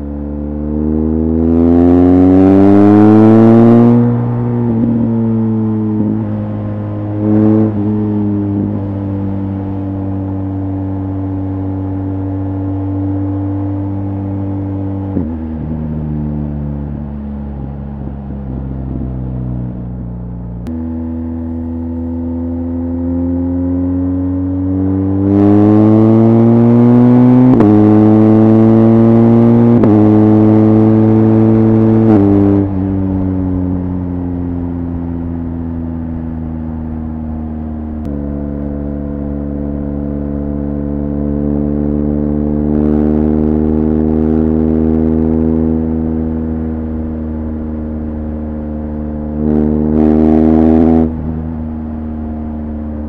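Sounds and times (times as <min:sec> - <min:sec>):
motorcycle engine accelerating: 0:00.0 - 0:53.0.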